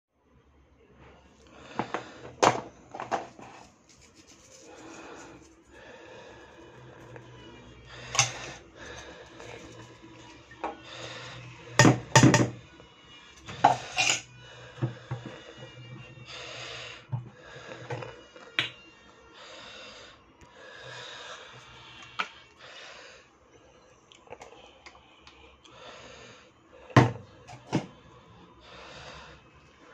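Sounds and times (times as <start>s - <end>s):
rubbing and scraping in a bowl: 2.9s - 12.3s, 13.4s - 14.3s
spoon and glass clinking: 13.6s - 14.3s.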